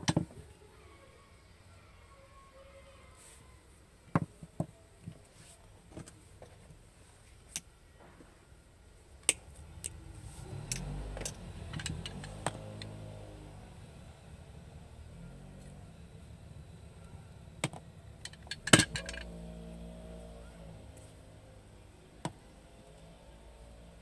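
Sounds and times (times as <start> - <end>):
tools clicking and knocking: 10.7 - 12.9, 17.6 - 19.3.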